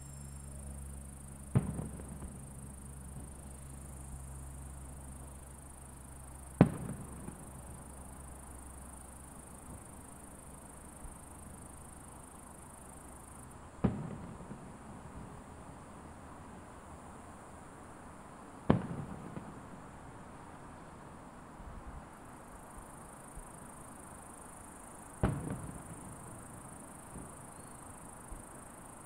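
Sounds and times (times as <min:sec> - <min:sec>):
distant fireworks booming: 0:01.5 - 0:03.9, 0:06.6 - 0:08.2, 0:13.8 - 0:15.4, 0:18.7 - 0:19.8, 0:25.2 - 0:28.1.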